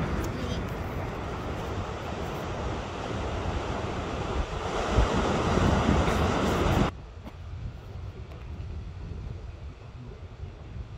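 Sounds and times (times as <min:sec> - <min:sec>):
ocean surf: 0:00.0 - 0:06.9
wind buffeting microphone: 0:00.0 - 0:10.9.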